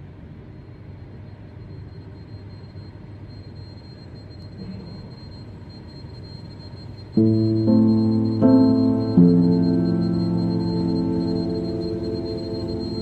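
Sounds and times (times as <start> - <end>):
high-pitched whine: 3.8 - 13.0
low rumbling noise: 7.2 - 13.0.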